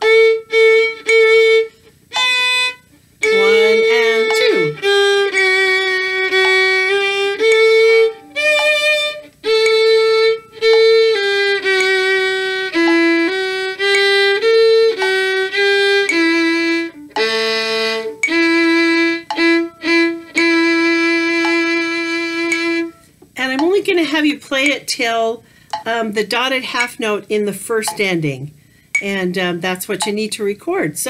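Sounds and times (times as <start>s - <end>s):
solo violin melody: 0.0s - 24.2s.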